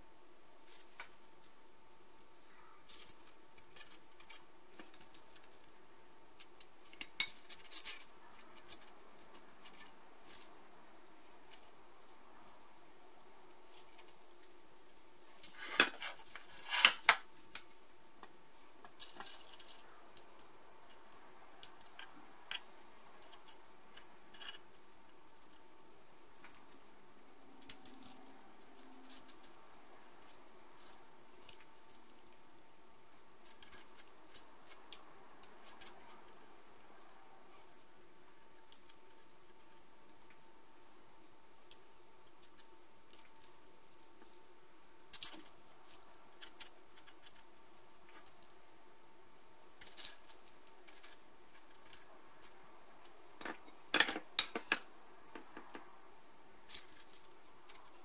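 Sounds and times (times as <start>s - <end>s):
spoons clicking and scraping: 2.9s - 5.7s, 6.4s - 12.6s, 15.4s - 17.8s, 18.9s - 26.8s, 27.4s - 32.4s, 33.4s - 37.2s, 49.3s - 55.8s.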